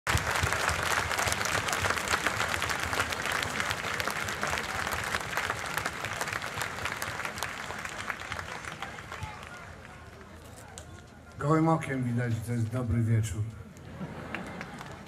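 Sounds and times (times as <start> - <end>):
audience applauding: 0.1 - 10.4, 13.9 - 15.0.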